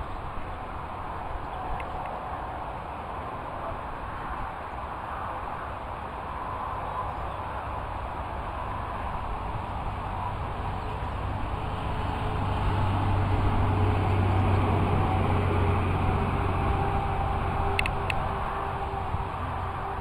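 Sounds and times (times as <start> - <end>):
rumble of passing road vehicle: 0.0 - 20.0.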